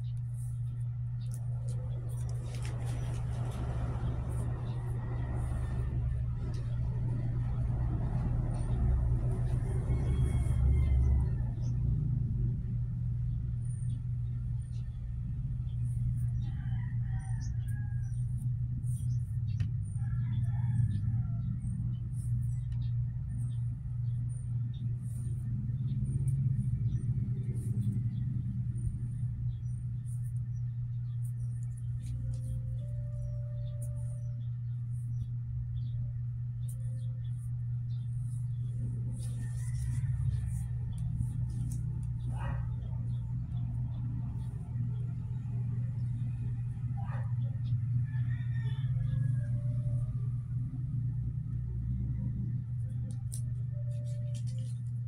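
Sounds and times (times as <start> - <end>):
faint rustles: 0.0 - 11.8, 36.6 - 46.8, 52.7 - 55.0
low rumbling hum: 0.0 - 55.0.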